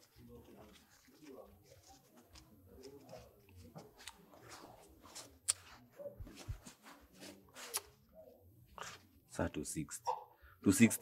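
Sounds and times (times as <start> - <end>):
banknotes rustling: 0.0 - 8.0.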